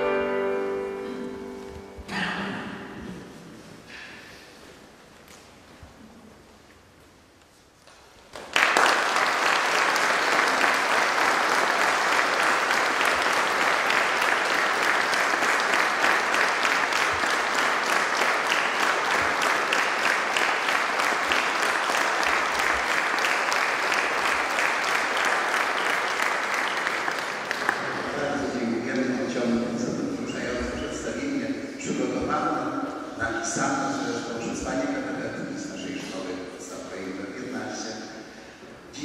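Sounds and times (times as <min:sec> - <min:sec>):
audience applauding: 0:08.2 - 0:29.1.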